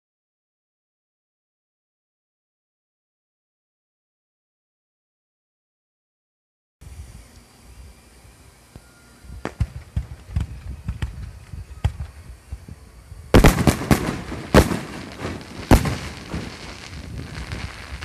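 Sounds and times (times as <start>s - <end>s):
fireworks pops and thumps: 9.4s - 12.7s, 13.4s - 18.0s
loud fireworks bangs: 9.4s - 12.7s, 13.3s - 18.0s.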